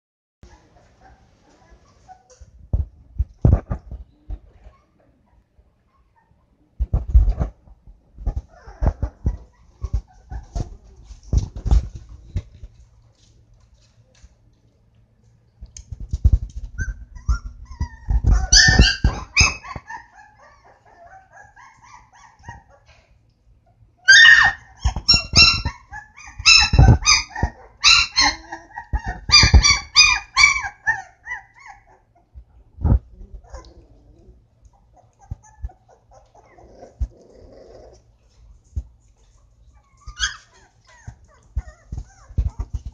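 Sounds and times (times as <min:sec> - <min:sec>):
puppy paws scuffling: 0:00.5 - 0:05.1, 0:06.8 - 0:23.2, 0:24.2 - 0:33.9, 0:34.6 - 0:42.9
puppies yipping and barking: 0:08.3 - 0:10.8, 0:16.6 - 0:23.1, 0:23.8 - 0:32.3, 0:33.3 - 0:33.8, 0:34.7 - 0:37.9, 0:39.2 - 0:42.9.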